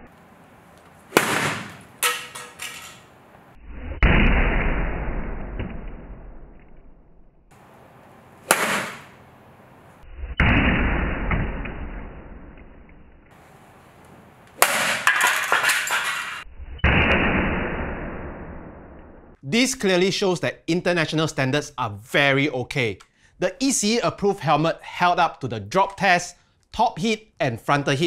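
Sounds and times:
golf club striking helmet: 1.1 - 2.8, 8.4 - 9.2.

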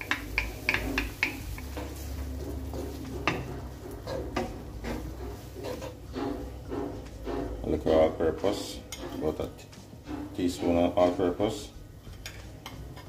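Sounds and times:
wooden spoon knocking on glass bowl: 0.0 - 1.8
spoon stirring in frying pan: 0.0 - 13.0.

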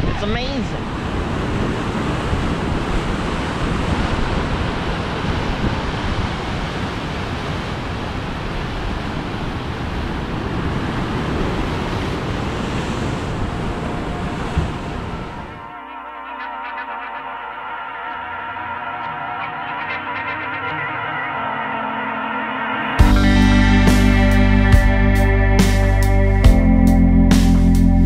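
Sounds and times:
wind buffeting microphone: 0.0 - 15.7
ocean waves crashing: 0.0 - 26.3.

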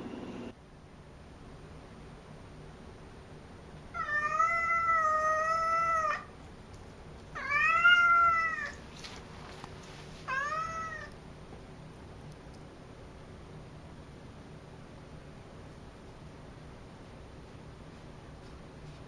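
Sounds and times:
cat meowing: 3.9 - 6.3, 7.4 - 8.8, 10.2 - 11.1.

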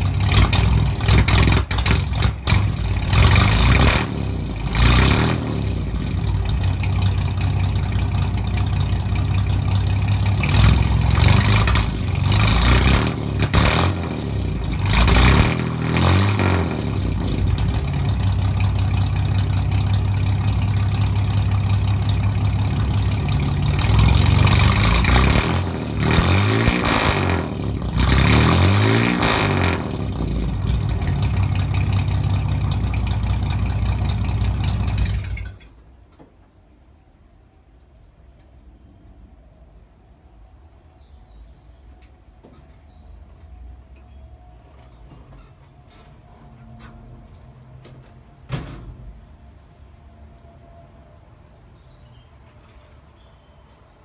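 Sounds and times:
car engine idling and revving: 0.0 - 35.7.

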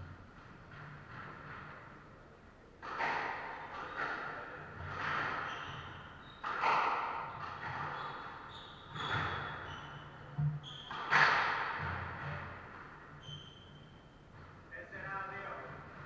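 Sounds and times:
shoe squeaks on wooden floor: 5.0 - 11.7, 13.1 - 14.2.

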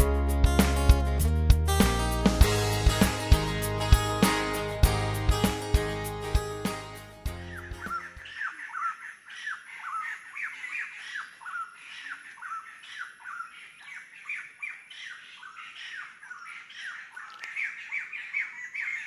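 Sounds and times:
birds squawking: 6.6 - 19.0.

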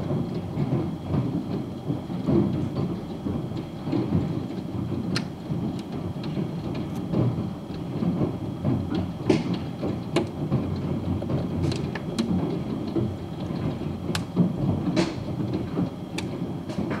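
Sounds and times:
hail pattering: 5.0 - 17.0.

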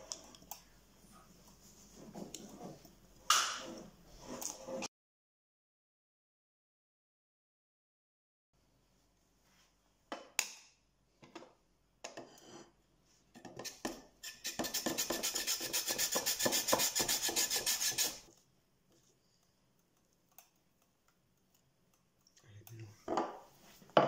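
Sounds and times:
potato grating on slicer: 13.7 - 18.3.

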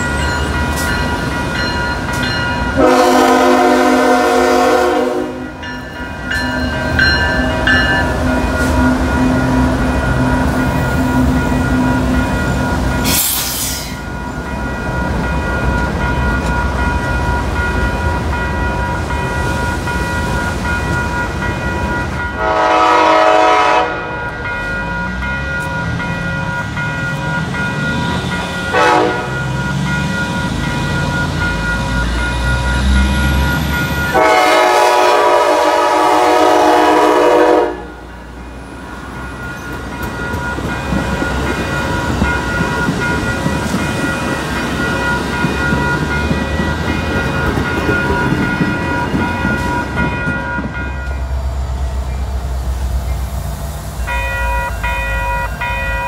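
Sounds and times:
crossing bell ringing: 0.0 - 56.0
passenger train rumble: 0.0 - 56.0
train horn: 2.7 - 5.6, 22.4 - 24.2, 28.7 - 29.4, 34.1 - 38.0.

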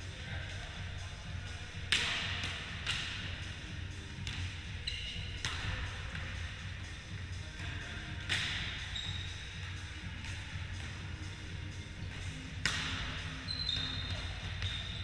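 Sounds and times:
volleyball hits echoing in gym: 0.5 - 15.0
sneakers squeaking on wooden floor: 4.8 - 5.4, 8.7 - 9.5, 13.4 - 15.0.

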